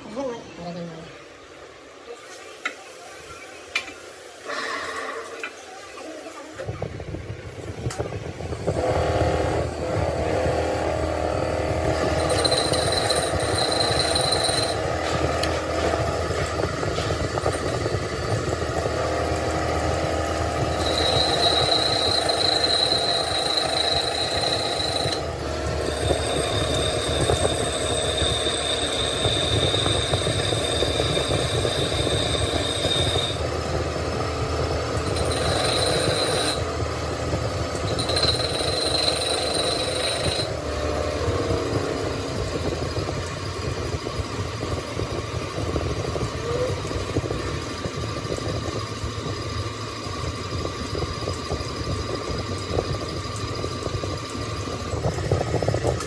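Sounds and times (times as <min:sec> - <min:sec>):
workshop machinery running: 0:02.2 - 0:56.0
low steady whine: 0:06.6 - 0:56.0
high-pitched machine whine: 0:07.8 - 0:56.0.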